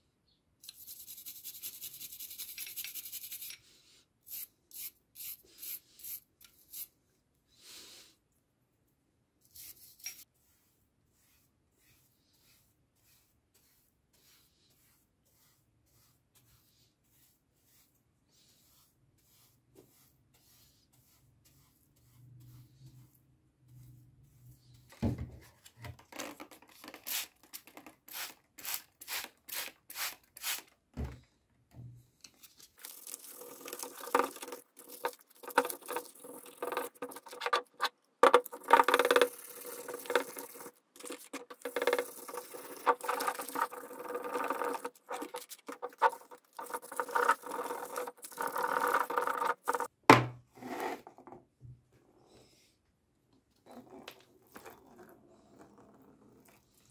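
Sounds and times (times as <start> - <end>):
brush sweeping on wooden tabletop: 9.4 - 25.6, 38.3 - 49.9, 50.5 - 51.2
scrubbing on metal faucet: 32.8 - 49.9.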